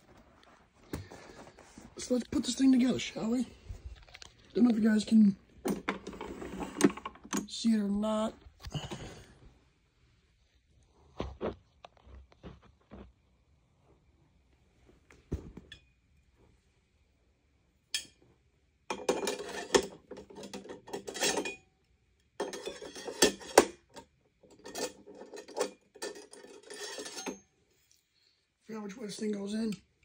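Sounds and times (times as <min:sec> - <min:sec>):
metal vacuum tube scraping and rattling: 0:05.6 - 0:07.4, 0:18.9 - 0:21.6, 0:22.4 - 0:27.5.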